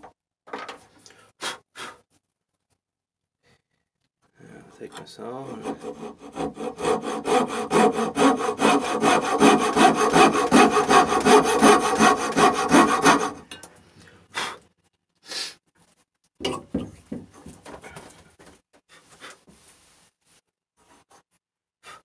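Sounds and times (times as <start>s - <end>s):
coping saw cutting wood: 5.2s - 13.4s.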